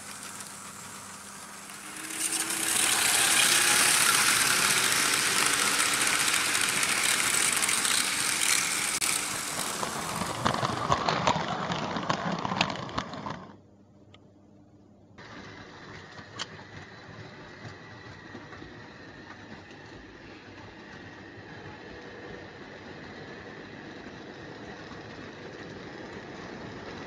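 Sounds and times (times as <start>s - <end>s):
model trains whirring and rattling: 0.0s - 13.6s, 15.2s - 27.0s
sharp clicks of train track: 0.0s - 14.2s, 15.2s - 27.0s.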